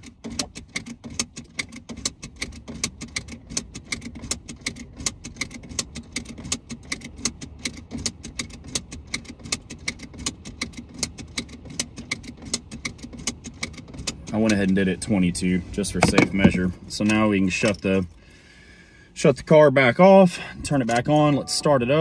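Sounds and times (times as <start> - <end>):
seat belt buckle clicks: 0.0 - 14.8.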